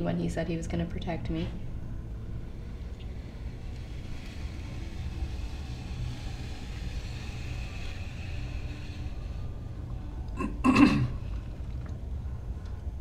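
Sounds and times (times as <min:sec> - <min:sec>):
low room noise rumble: 0:00.0 - 0:13.0
faint hiss: 0:02.1 - 0:11.6.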